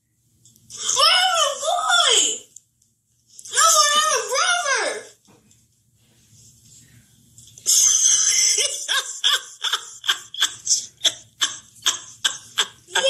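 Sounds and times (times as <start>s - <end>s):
cartoon character laughing: 7.7s - 13.0s.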